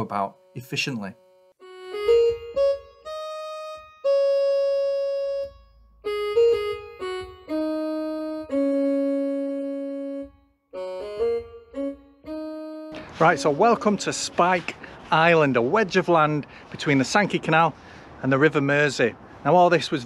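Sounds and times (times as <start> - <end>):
slow keyboard music: 0.0 - 15.1.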